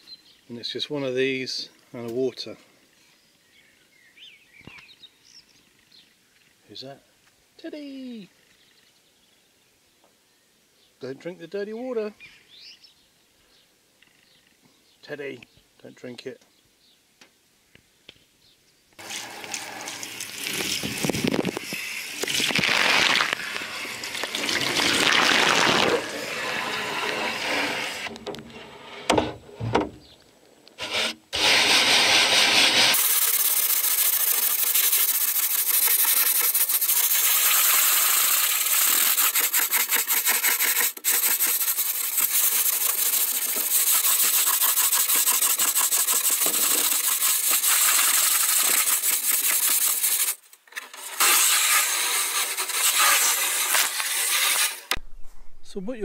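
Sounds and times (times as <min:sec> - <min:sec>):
hose water splashing on metal: 0:19.0 - 0:28.1, 0:30.9 - 0:54.9
wire wool scrubbing: 0:30.8 - 0:50.4, 0:51.0 - 0:54.9.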